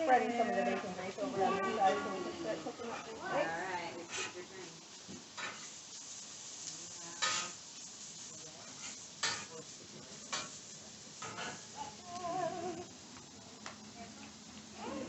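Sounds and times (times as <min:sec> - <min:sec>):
food sizzling on a griddle: 0:00.0 - 0:15.0
metal spatula scraping steel: 0:07.2 - 0:07.6, 0:11.2 - 0:11.9.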